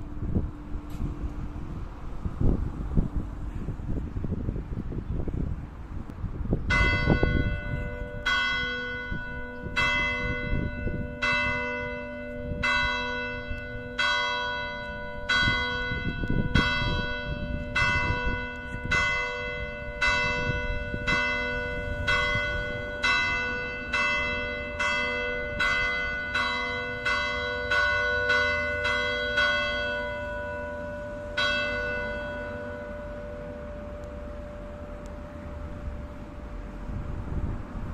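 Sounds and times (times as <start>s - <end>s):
church bell ringing: 6.6s - 36.9s.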